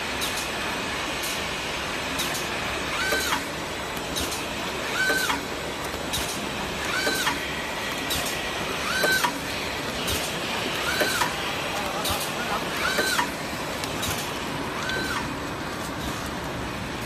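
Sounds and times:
packing machine whine: 0.0s - 17.0s
steady machine noise: 0.0s - 17.0s
sharp machine clicks: 2.1s - 15.4s.

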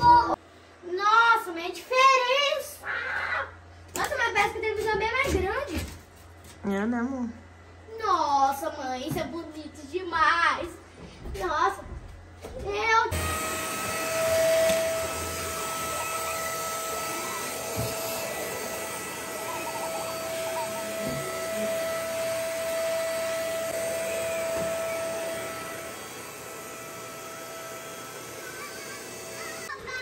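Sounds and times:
handheld vacuum cleaner running: 12.8s - 30.0s.

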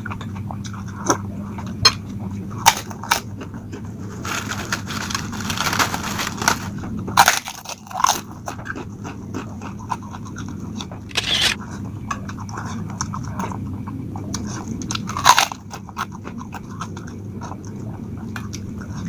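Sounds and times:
chewing: 0.0s - 5.3s, 7.2s - 19.0s
steady low hum: 0.0s - 19.0s
cracker crunching: 2.6s - 11.6s.

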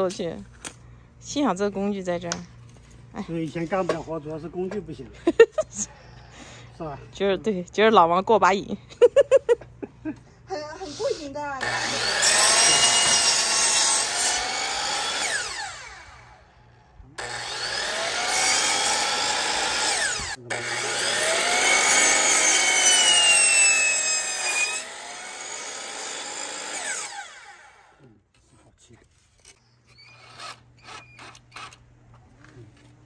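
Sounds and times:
miter saw cutting wood: 11.6s - 16.5s, 17.1s - 28.0s.

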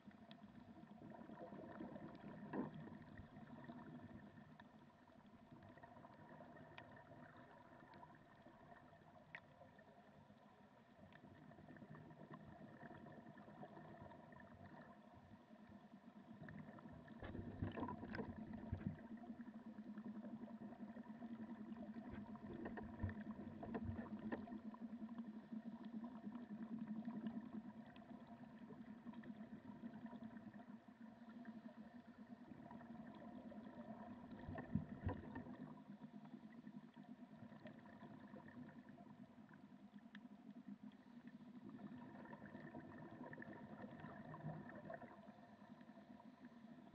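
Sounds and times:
underwater motor hum: 0.0s - 46.9s.

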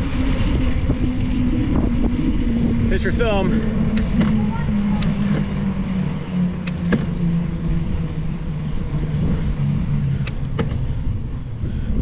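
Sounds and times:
bicycle tyres rolling on asphalt: 0.0s - 12.0s
wavering low hum: 0.0s - 12.0s
wind rushing over microphone: 0.0s - 12.0s
sharp clicks: 3.9s - 4.4s.

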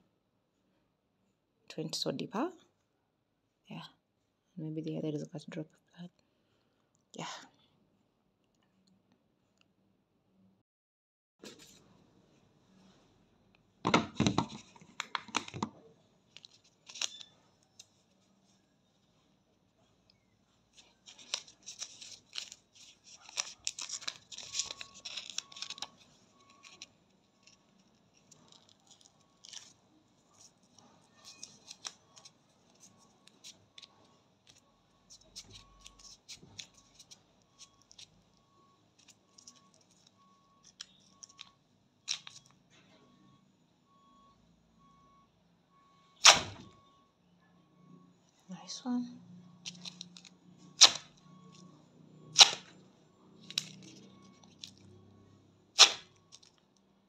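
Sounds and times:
wax strip crinkling: 16.3s - 18.6s, 20.1s - 38.4s, 39.0s - 41.5s, 42.1s - 42.5s, 49.6s - 51.6s, 53.4s - 54.9s, 55.8s - 56.6s
wax strip ripping off skin: 50.8s - 51.1s, 52.4s - 52.7s, 55.8s - 56.5s.

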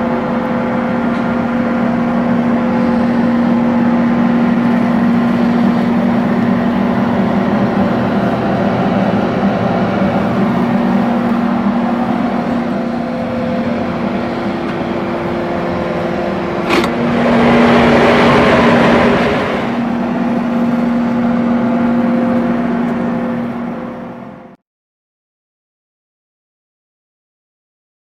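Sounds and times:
rushing noise: 0.0s - 24.6s
smokehouse motor hum: 0.0s - 24.6s
door lever click: 16.6s - 17.0s.

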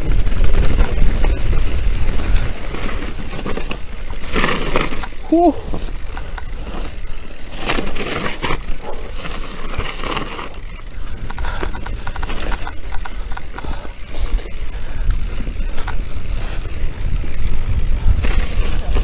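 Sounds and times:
bike rattles and clicks: 0.0s - 19.0s
bike tyres rolling on dirt: 0.0s - 19.0s
wind on microphone: 11.0s - 19.0s.

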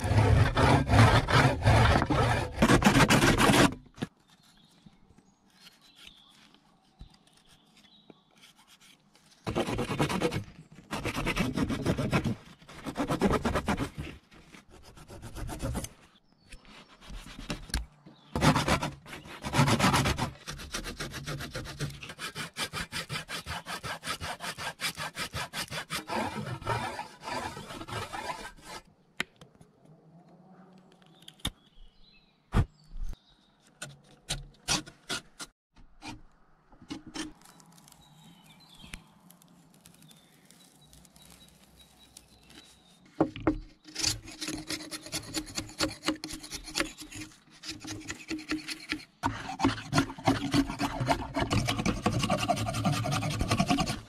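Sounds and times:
hand saw cutting wood: 0.0s - 3.8s, 8.4s - 16.0s, 16.8s - 28.9s, 34.3s - 36.2s, 43.3s - 54.0s.

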